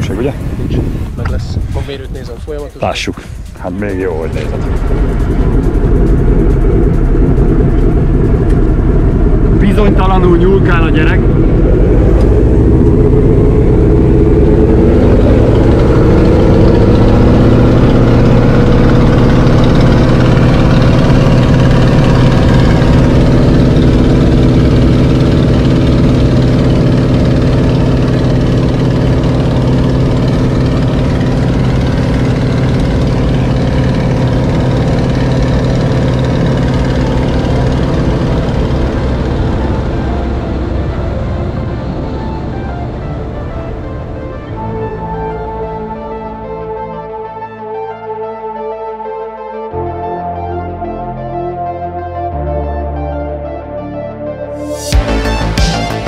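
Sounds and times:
aircraft piston engine: 0.0 - 44.1.

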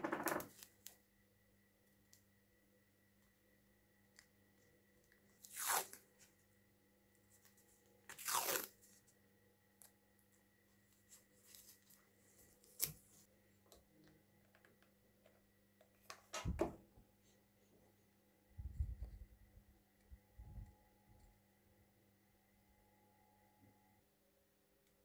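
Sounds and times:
masking tape tearing: 5.4 - 6.0, 8.1 - 8.8
tape handling rustle: 7.3 - 9.1, 10.9 - 13.2.

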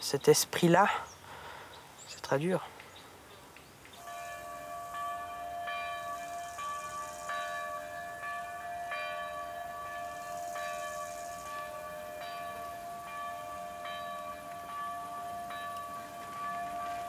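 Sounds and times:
church bells ringing: 4.0 - 17.0.

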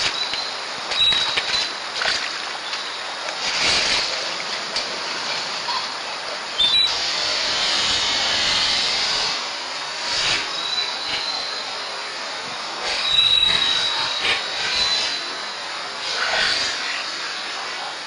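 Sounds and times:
rainforest ambience hiss: 0.0 - 18.0
brief high squeak: 6.6 - 7.0.

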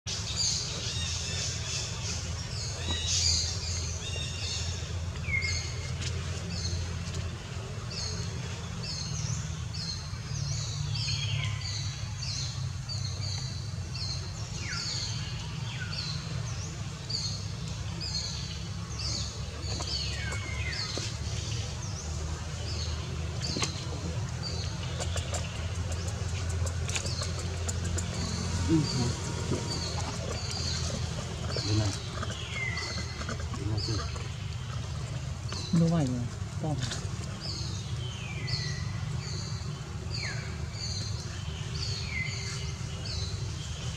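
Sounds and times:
wild birds chirping: 0.1 - 43.9.

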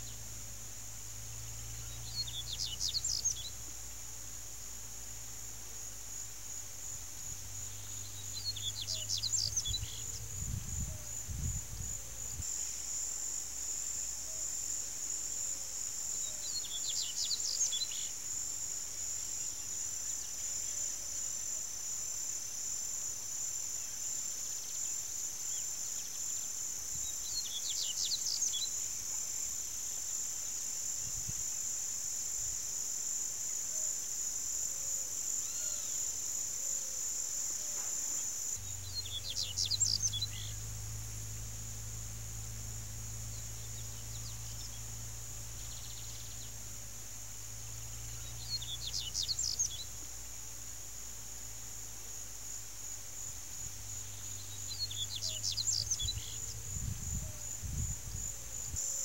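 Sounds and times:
insects trilling: 0.0 - 59.0
small bird singing: 1.3 - 3.6, 7.5 - 12.4, 16.1 - 18.2, 25.5 - 28.8, 38.6 - 40.8, 43.3 - 46.6, 47.7 - 50.0, 54.0 - 57.4.

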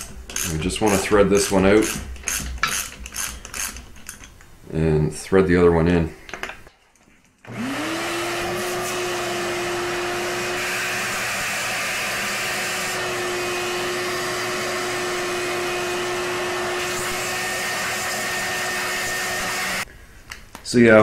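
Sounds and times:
vacuum cleaner running: 7.5 - 19.9.

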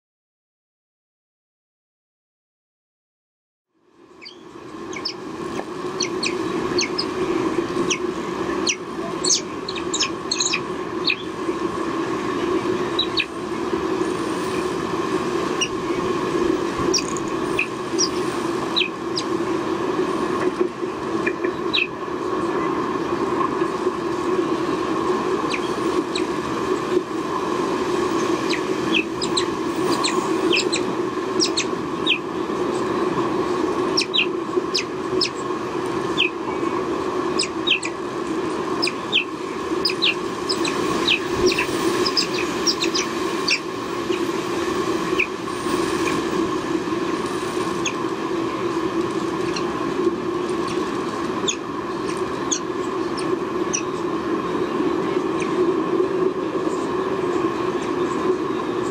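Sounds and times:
steady low hum: 3.7 - 58.9
high bird chirps: 4.2 - 5.2, 6.0 - 7.2, 8.6 - 11.3, 12.9 - 13.3, 16.9 - 19.3, 25.5 - 26.3, 28.2 - 32.2, 38.8 - 44.2.

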